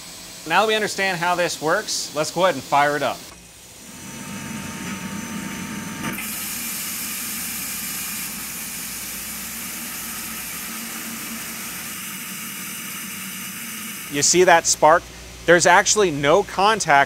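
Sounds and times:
steady machine hum: 0:00.0 - 0:17.0
coolant spray hissing: 0:06.1 - 0:16.3.

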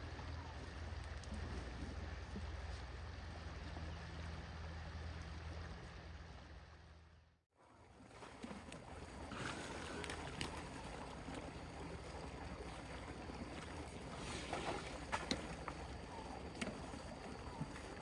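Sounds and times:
water spout splashing: 0:08.1 - 0:18.0.

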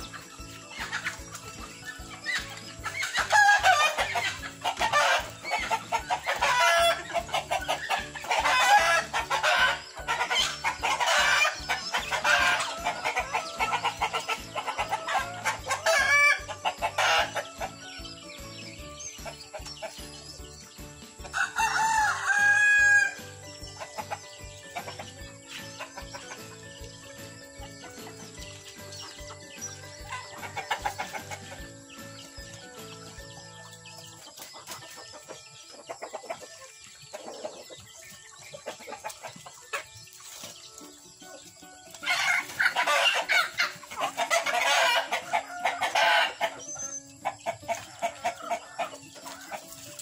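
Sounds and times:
chickens calling loudly: 0:00.0 - 0:50.0
rooster crowing: 0:21.4 - 0:23.2.

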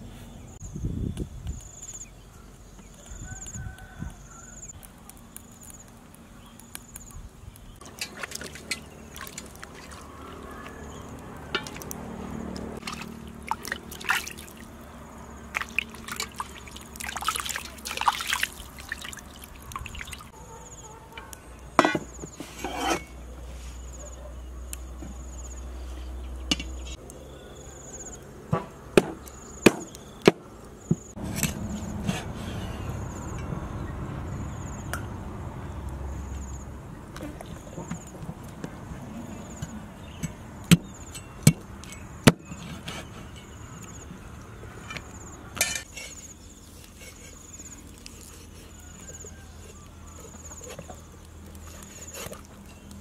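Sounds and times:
insects chirping: 0:06.6 - 0:21.3, 0:23.8 - 0:28.2, 0:32.6 - 0:36.8
water splashing and trickling: 0:07.8 - 0:20.4
cleaver chopping on wooden board: 0:28.6 - 0:31.0.

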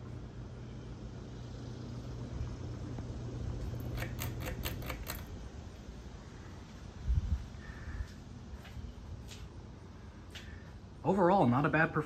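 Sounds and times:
ceiling fan humming: 0:00.0 - 0:12.0
sharp clicks: 0:03.8 - 0:05.4.

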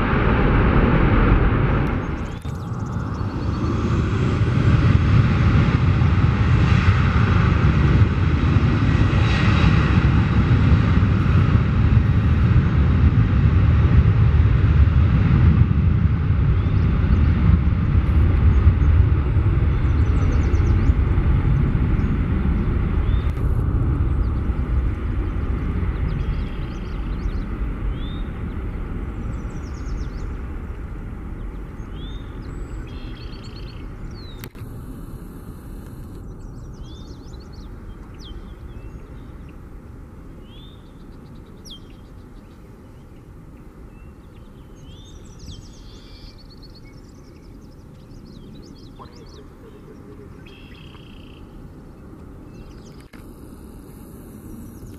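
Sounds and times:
jet engines rumbling: 0:00.0 - 0:54.9
small birds chirping: 0:01.9 - 0:04.1, 0:19.7 - 0:23.4, 0:24.0 - 0:39.7, 0:40.3 - 0:54.9.

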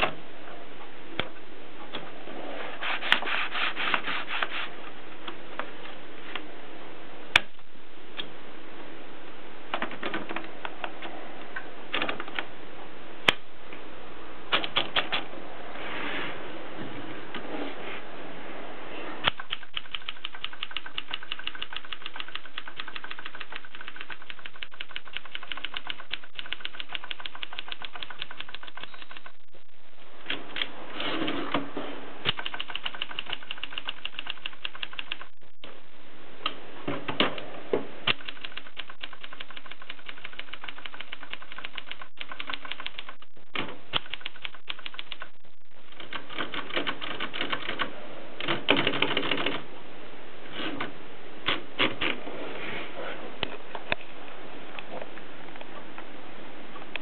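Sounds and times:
typewriter keys clacking: 0:19.2 - 0:29.4, 0:32.3 - 0:35.4, 0:38.1 - 0:43.3.

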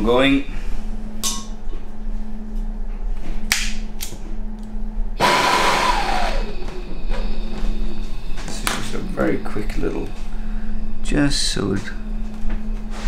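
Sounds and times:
blowtorch flame hissing: 0:05.2 - 0:06.8.

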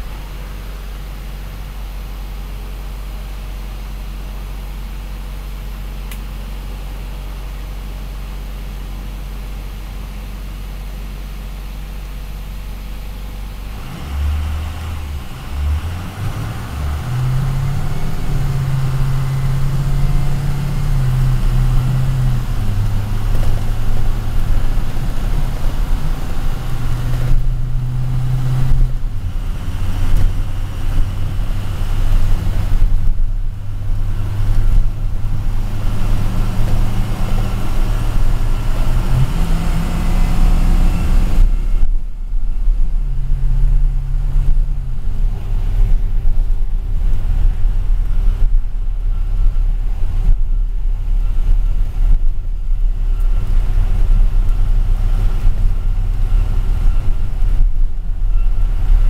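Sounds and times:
bus engine accelerating: 0:12.4 - 0:59.0.

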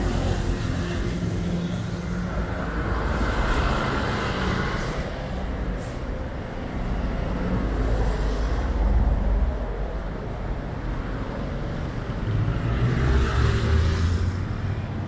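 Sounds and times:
vehicles passing rumble: 0:00.0 - 0:15.0
tyres hissing on wet road: 0:05.7 - 0:06.2.

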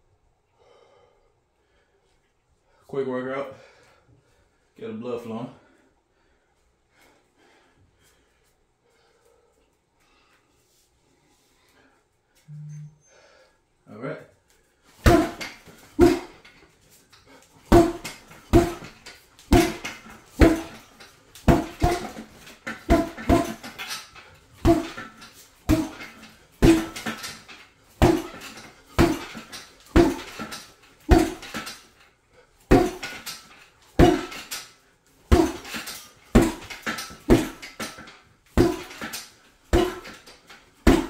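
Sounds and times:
metallic rattle of bag stand: 0:14.8 - 0:41.0
punches thudding on heavy bag: 0:15.0 - 0:16.5, 0:17.7 - 0:24.0, 0:24.6 - 0:31.8, 0:32.7 - 0:34.6, 0:35.3 - 0:41.0.

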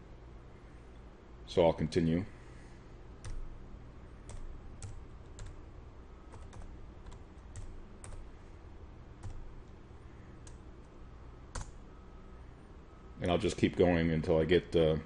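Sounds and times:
computer keyboard keystrokes: 0:03.2 - 0:03.5, 0:04.3 - 0:05.6, 0:06.3 - 0:08.3, 0:09.2 - 0:09.8, 0:11.5 - 0:11.8.

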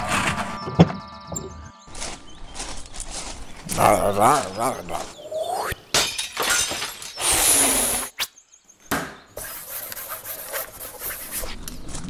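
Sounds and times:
rising whistle: 0:00.0 - 0:02.0
glass shattering: 0:05.9 - 0:07.4.

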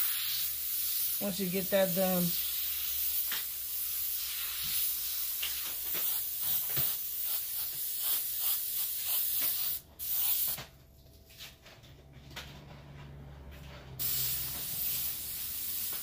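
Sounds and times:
airbrush spraying hiss: 0:00.0 - 0:10.6, 0:14.0 - 0:16.0.

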